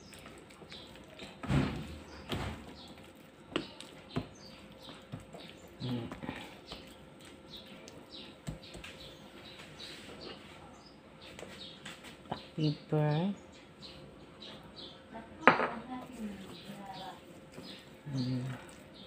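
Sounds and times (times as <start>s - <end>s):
hands rubbing meat: 2.8s - 10.5s, 16.0s - 19.0s.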